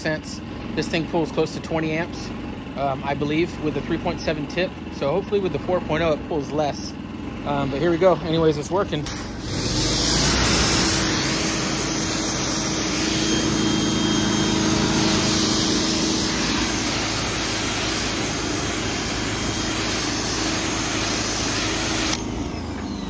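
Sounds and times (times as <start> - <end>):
low steady motor hum: 0.0 - 23.0
pressure washer spray hissing: 7.5 - 22.2.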